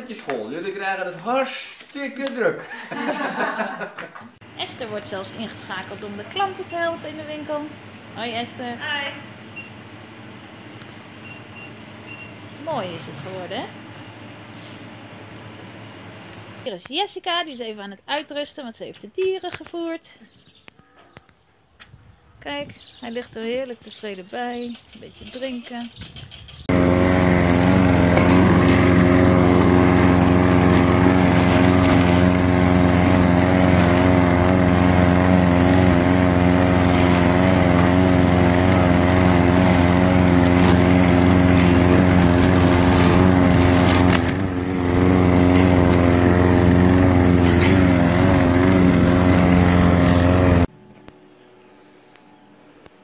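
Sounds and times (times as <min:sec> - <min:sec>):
lawn mower running: 0:02.7 - 0:16.7, 0:26.2 - 0:50.8.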